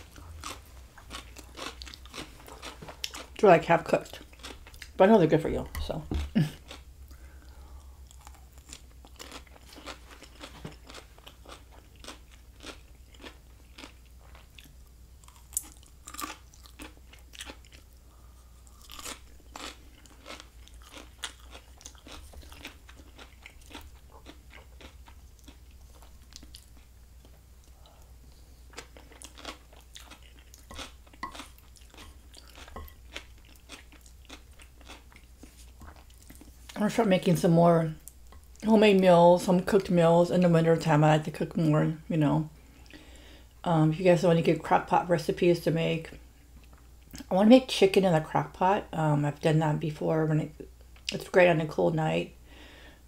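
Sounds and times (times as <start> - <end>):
crisp chewing crunches: 0.0 - 3.4, 8.1 - 18.0, 18.6 - 27.4, 28.7 - 36.8.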